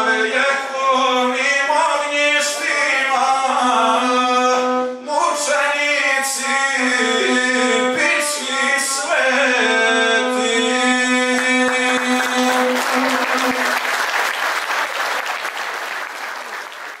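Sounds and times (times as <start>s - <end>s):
man singing: 0.0s - 13.7s
bowed string instrument: 0.0s - 13.9s
audience applause: 11.4s - 17.0s.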